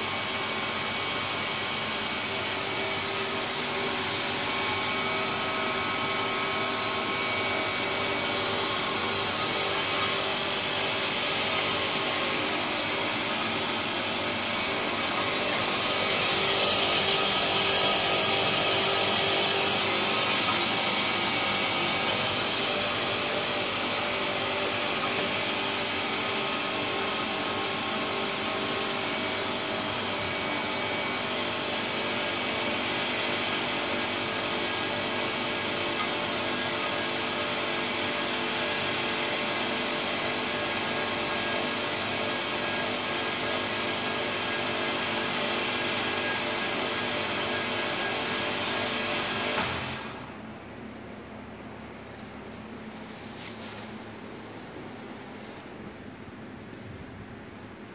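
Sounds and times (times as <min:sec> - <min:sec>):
bandsaw humming: 0:00.0 - 0:38.3.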